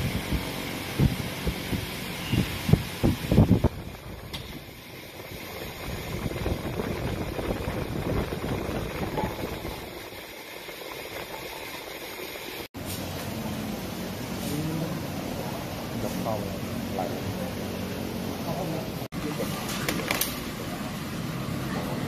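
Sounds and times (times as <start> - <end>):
wind buffeting microphone: 0.0 - 4.7, 5.5 - 10.0.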